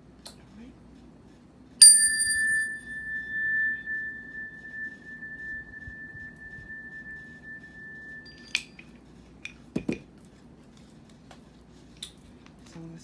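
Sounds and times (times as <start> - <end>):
metal chime ringing: 1.8 - 8.8.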